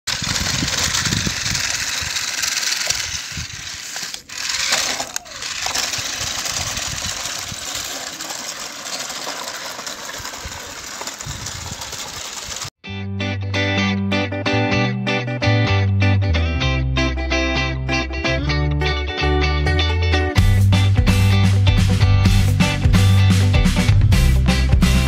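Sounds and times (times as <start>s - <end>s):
plastic wheels rattling on concrete: 0.0s - 12.8s
electric motor whirring: 0.1s - 12.7s.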